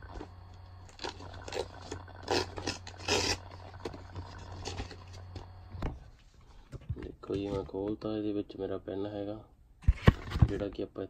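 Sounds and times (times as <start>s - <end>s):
low hum: 0.0s - 6.7s
envelope ripping: 0.9s - 3.6s.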